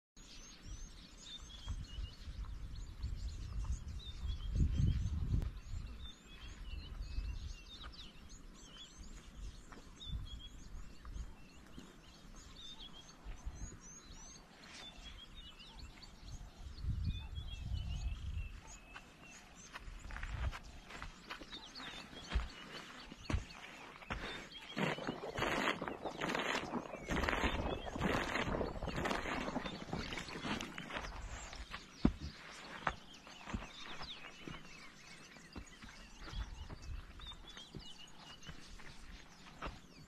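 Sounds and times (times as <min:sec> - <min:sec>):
small birds chirping: 0:00.2 - 0:40.0
heavy animal footsteps thudding: 0:19.8 - 0:39.9.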